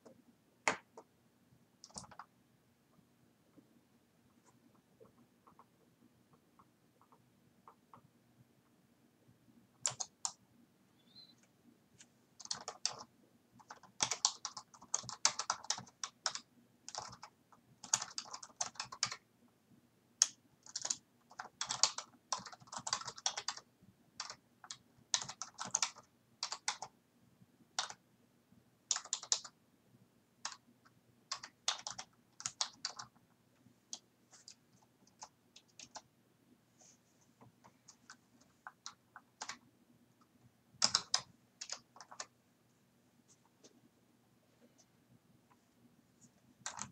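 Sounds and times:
faint steady hum: 0.0 - 46.9
computer keyboard typing: 1.8 - 2.3, 4.4 - 8.0, 9.8 - 10.4, 12.4 - 19.2, 20.2 - 27.0, 27.8 - 28.0, 28.9 - 29.6, 30.4 - 30.6, 31.3 - 33.2, 33.9 - 36.1, 37.6 - 39.6, 40.8 - 42.4, 46.6 - 46.9.

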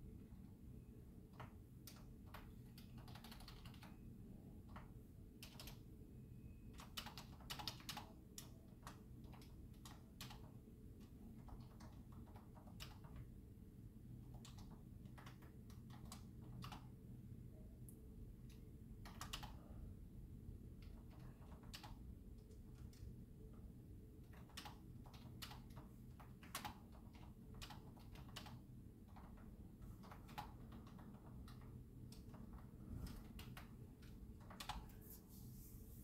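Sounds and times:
typing on computer keyboard: 1.3 - 5.9, 6.7 - 13.3, 14.2 - 17.0, 18.5 - 19.8, 20.8 - 23.2, 24.2 - 35.0
steady low hum: 13.2 - 36.0.

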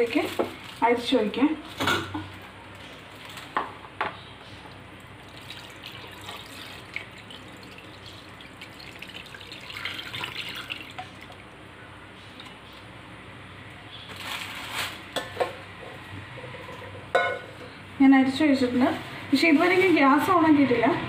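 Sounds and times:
syrup trickling and dripping: 4.7 - 11.6, 12.2 - 12.9.

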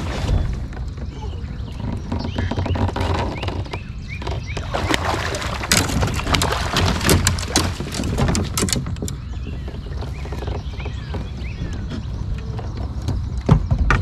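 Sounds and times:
wind rumble on microphone: 0.0 - 14.0
clatters and knocks on kayak: 0.3 - 14.0
water splashing: 4.2 - 10.4.

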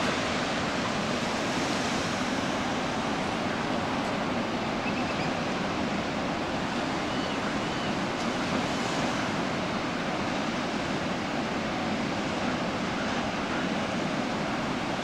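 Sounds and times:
ocean waves breaking: 0.0 - 15.0.

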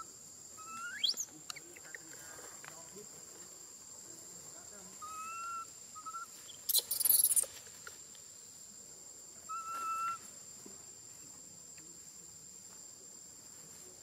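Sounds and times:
high-pitched insect drone: 0.0 - 2.2, 3.5 - 11.2
baby monkey coo: 0.6 - 2.0, 5.0 - 7.6, 9.5 - 10.2.

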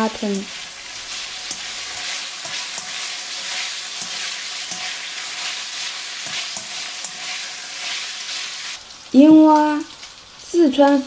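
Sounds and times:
meat sizzling in hot oil: 0.0 - 11.0
spatula tapping and scraping pan: 1.1 - 8.1.

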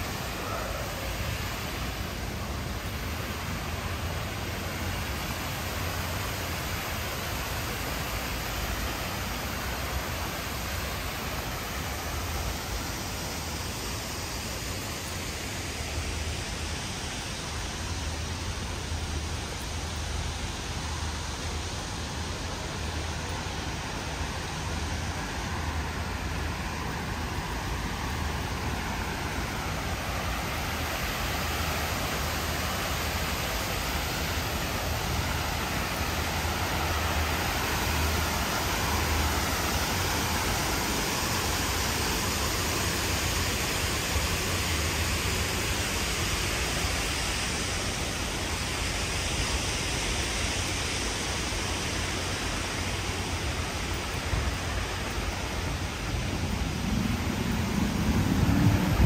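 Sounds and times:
steady rushing noise: 0.0 - 59.0
low rumble: 55.3 - 59.0.

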